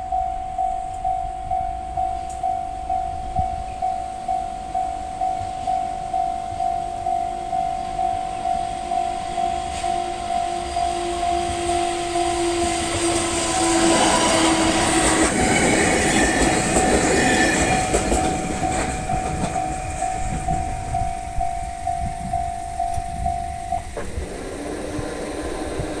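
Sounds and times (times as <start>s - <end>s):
level crossing bell ringing: 0.0s - 13.0s, 18.2s - 24.0s
electric train passing: 0.0s - 26.0s.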